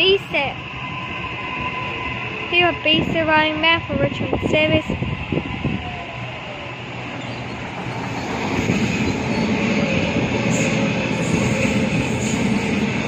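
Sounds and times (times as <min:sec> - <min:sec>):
electric train running: 0:06.8 - 0:13.0
wheel squeal: 0:07.2 - 0:09.6.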